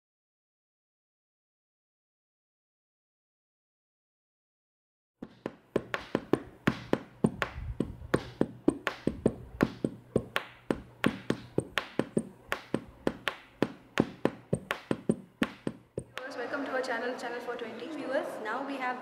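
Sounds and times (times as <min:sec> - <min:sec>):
rapid percussive taps: 0:05.2 - 0:16.4
low steady hum: 0:05.7 - 0:17.1.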